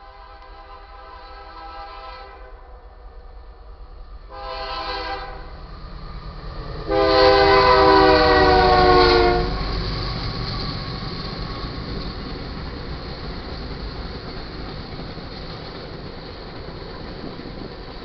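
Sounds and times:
locomotive horn blasts: 0.0s - 2.7s, 4.3s - 5.5s, 6.9s - 9.6s
passing train rumble: 0.0s - 18.0s.

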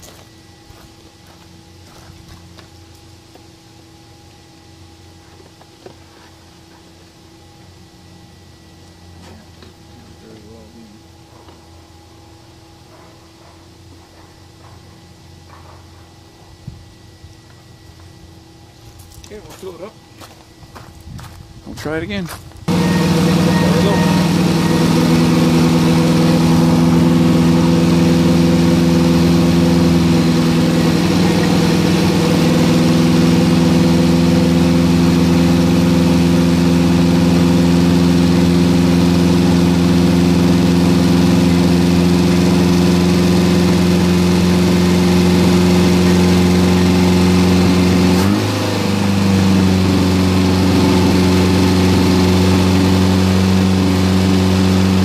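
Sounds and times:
car engine idling: 22.7s - 55.0s.

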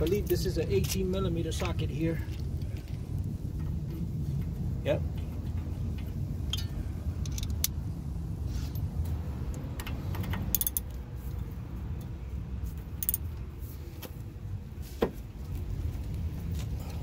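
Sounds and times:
steady low rumble: 0.0s - 17.0s
ratchet metallic clicks: 5.2s - 7.8s, 9.5s - 11.0s, 13.0s - 13.4s.

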